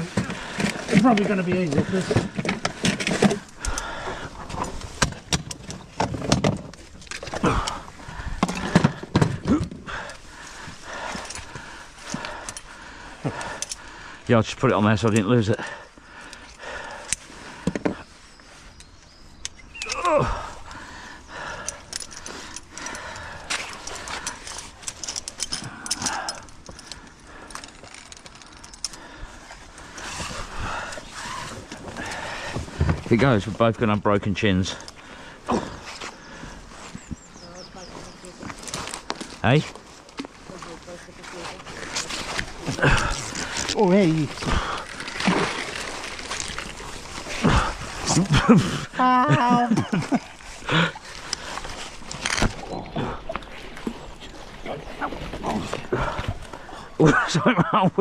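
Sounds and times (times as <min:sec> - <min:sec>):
rope rustling: 0:14.8 - 0:33.6, 0:34.8 - 0:57.0.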